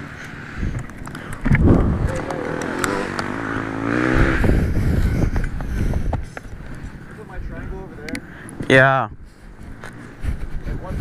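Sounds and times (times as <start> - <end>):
dirt bike engine revving: 1.4 - 6.1.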